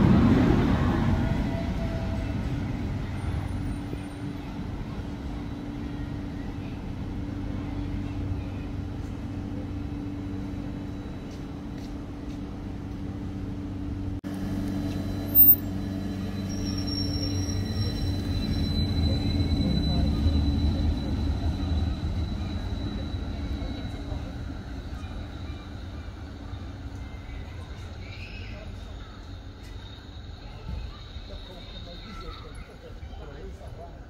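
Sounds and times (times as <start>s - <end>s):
electric tram motor hum: 0.0s - 32.9s
high thin squeal: 15.0s - 21.2s.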